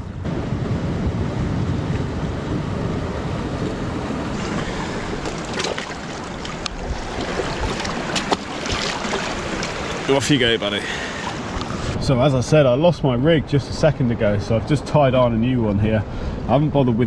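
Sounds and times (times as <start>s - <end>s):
wind buffeting microphone: 0.0s - 17.0s
water washing against rocks: 4.3s - 12.0s.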